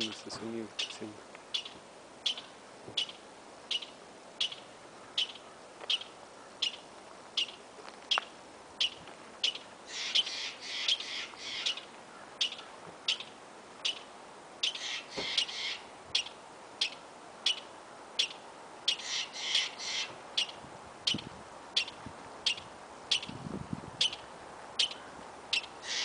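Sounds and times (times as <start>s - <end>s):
squirrel rasping chatter: 0.8s - 4.6s, 5.2s - 6.8s, 8.8s - 14.0s, 14.6s - 17.6s, 18.2s - 21.2s, 24.8s - 26.0s
squirrel chirping: 0.8s - 23.4s, 24.0s - 26.0s.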